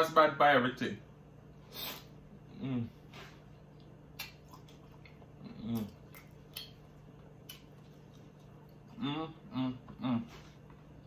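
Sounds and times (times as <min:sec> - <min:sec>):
man chewing and lip-smacking: 0:01.9 - 0:11.0
man humming: 0:02.5 - 0:03.0, 0:05.4 - 0:06.0, 0:08.9 - 0:10.5.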